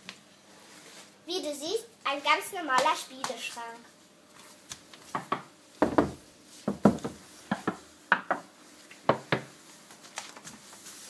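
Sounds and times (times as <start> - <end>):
knocking on wooden panel: 5.1 - 8.4.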